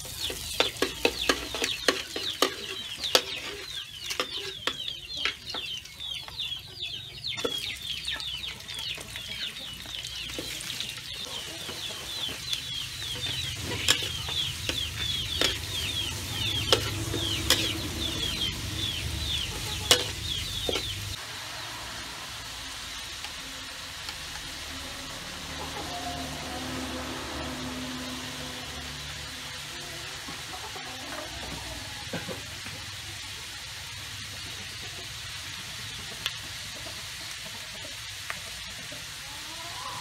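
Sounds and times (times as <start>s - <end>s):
vegetables sizzling in oil: 0.0s - 40.0s
metal spatula scraping a wok: 0.1s - 5.4s, 12.0s - 18.3s, 19.6s - 21.1s.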